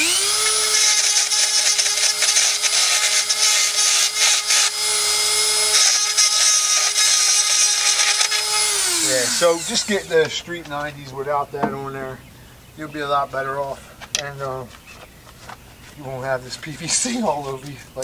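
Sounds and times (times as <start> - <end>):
plastic being cut with hiss: 0.0 - 10.1
rotary tool running high-pitched: 0.0 - 10.2.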